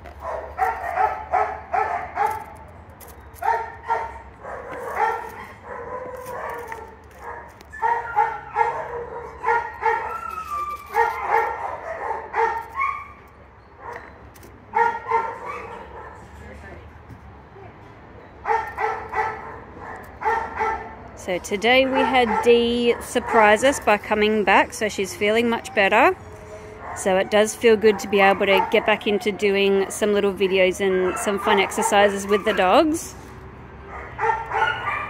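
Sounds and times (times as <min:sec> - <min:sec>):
dog barking and yipping: 0:00.2 - 0:02.7, 0:03.4 - 0:16.2, 0:18.4 - 0:21.0, 0:21.8 - 0:23.9, 0:25.5 - 0:29.4, 0:30.9 - 0:33.1, 0:33.9 - 0:35.0.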